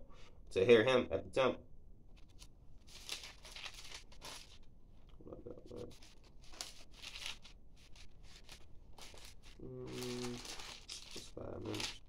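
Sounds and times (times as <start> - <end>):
thin pages rustling: 2.1 - 5.2, 5.8 - 12.0.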